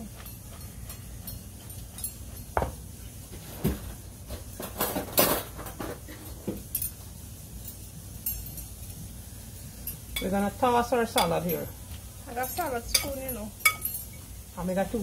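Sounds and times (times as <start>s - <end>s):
spoons clinking against a bowl: 0.0s - 2.8s, 6.6s - 11.7s, 12.3s - 14.3s.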